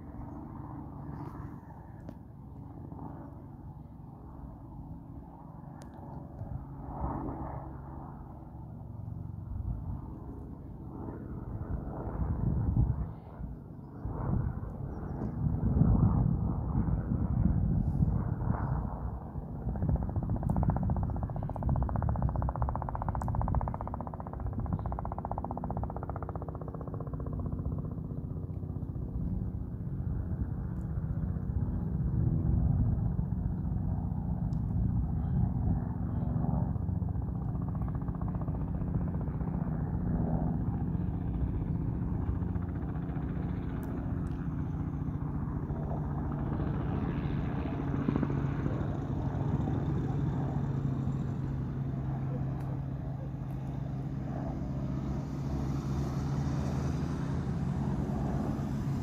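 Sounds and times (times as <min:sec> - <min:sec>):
distant helicopter drone: 0:00.0 - 0:59.0.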